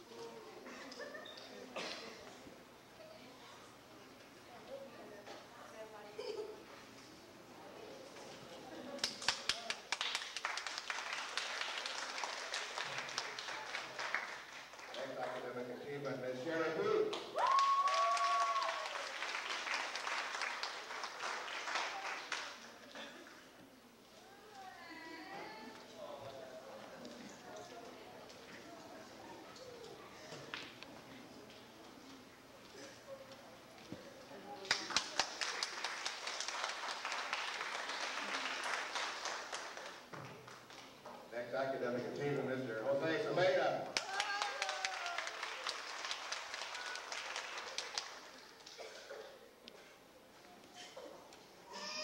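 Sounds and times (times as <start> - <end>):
audience applause: 9.0 - 15.6, 17.2 - 22.8, 34.6 - 40.8, 44.0 - 48.9.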